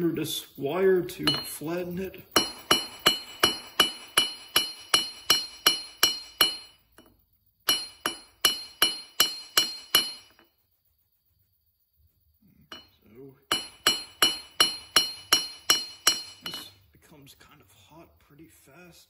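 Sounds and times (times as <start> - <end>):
hammer ringing on metal: 1.2 - 7.1, 7.7 - 10.4, 12.7 - 12.9, 13.5 - 16.8.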